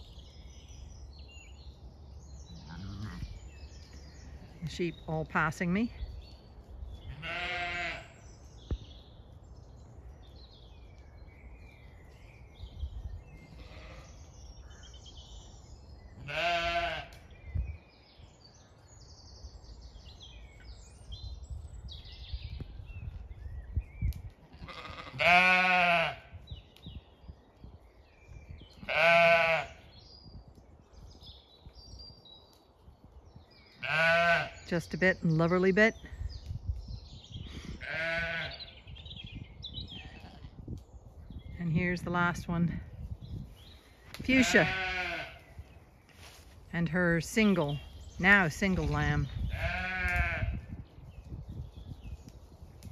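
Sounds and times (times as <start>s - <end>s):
sheep bleating: 2.6s - 3.4s, 7.1s - 8.1s, 13.6s - 14.1s, 16.2s - 17.2s, 24.5s - 26.2s, 28.8s - 29.8s, 33.8s - 34.6s, 37.8s - 38.6s, 44.3s - 45.4s, 49.5s - 50.6s.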